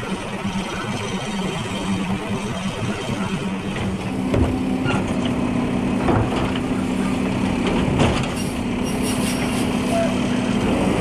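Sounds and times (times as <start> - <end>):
steady hum: 0.0 - 5.8
garbage truck engine and hydraulics: 0.0 - 11.0.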